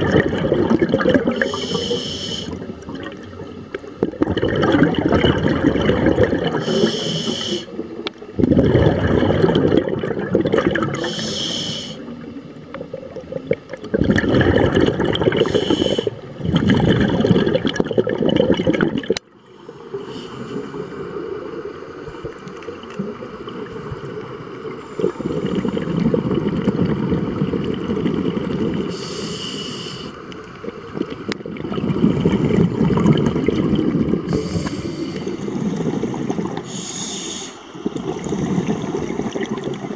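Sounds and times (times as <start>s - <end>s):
exhaled bubbles rushing: 0.0s - 11.3s, 12.0s - 19.3s, 21.1s - 29.0s, 30.6s - 36.7s, 37.9s - 39.9s
regulator hissing inhale: 1.3s - 2.6s, 6.6s - 7.8s, 10.9s - 12.1s, 15.4s - 16.2s, 19.5s - 21.1s, 24.8s - 26.0s, 28.9s - 30.3s, 34.3s - 35.8s, 36.6s - 37.8s.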